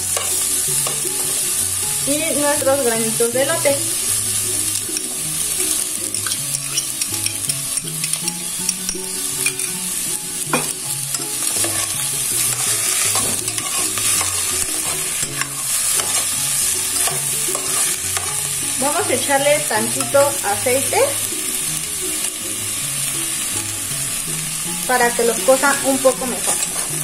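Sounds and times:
metal spoon stirring and scraping: 0:00.0 - 0:01.6, 0:04.7 - 0:09.9, 0:10.5 - 0:20.5, 0:25.6 - 0:27.0
vegetables sizzling in a pot: 0:00.0 - 0:27.0.

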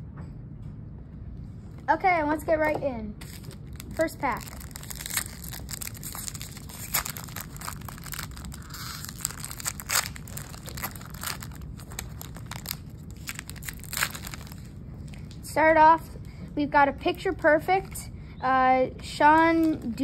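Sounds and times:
foil wrapper tearing and crumpling: 0:03.2 - 0:15.4, 0:19.4 - 0:20.0.

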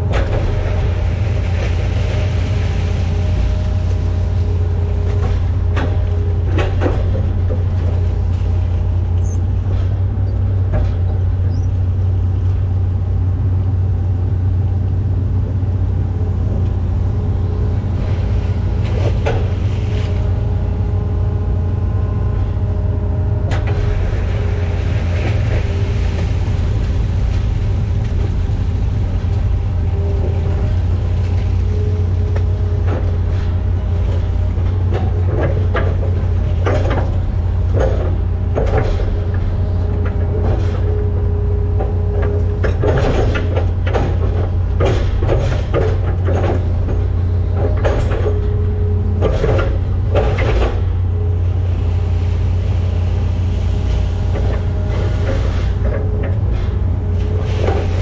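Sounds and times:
excavator diesel engine: 0:00.0 - 0:58.0.

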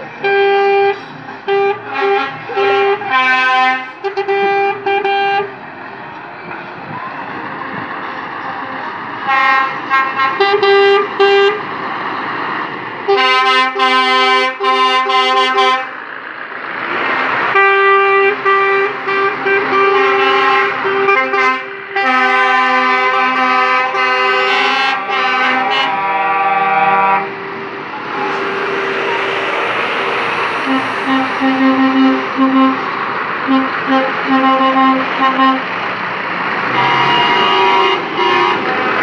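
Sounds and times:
diesel truck engines: 0:00.0 - 0:39.0
lorry air horns: 0:00.2 - 0:05.5, 0:13.1 - 0:16.0, 0:17.5 - 0:32.9, 0:33.5 - 0:35.7, 0:36.7 - 0:39.0.

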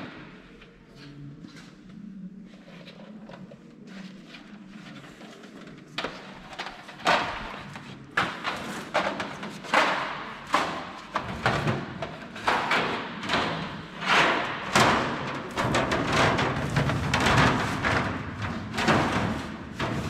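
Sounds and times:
thumps and metallic bangs: 0:06.0 - 0:20.0.

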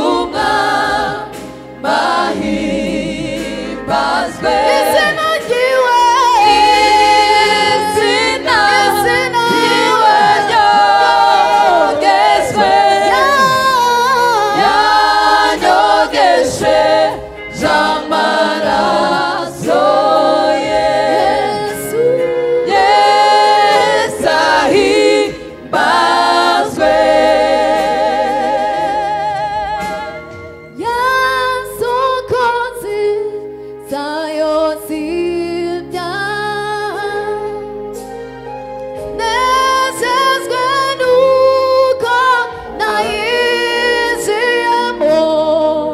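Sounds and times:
gospel choir singing: 0:00.0 - 0:45.9.

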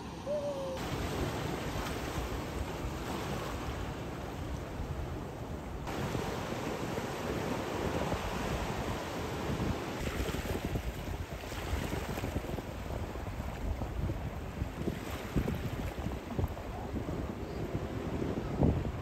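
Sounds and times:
ocean surf breaking: 0:00.0 - 0:05.2, 0:05.8 - 0:12.2
wind buffeting microphone: 0:05.8 - 0:19.0.

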